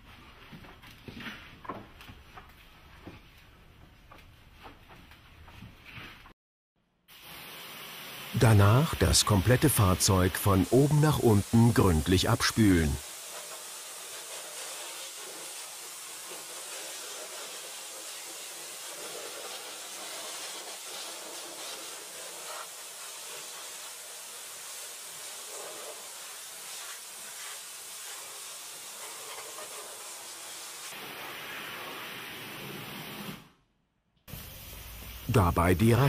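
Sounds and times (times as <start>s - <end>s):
pressure washer spraying water: 7.1s - 33.4s, 34.3s - 35.3s.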